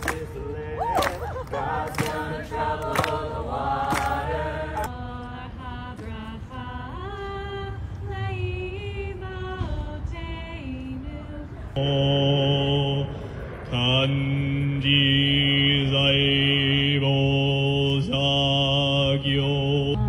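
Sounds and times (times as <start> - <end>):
voices singing without instruments: 0.0 - 13.0.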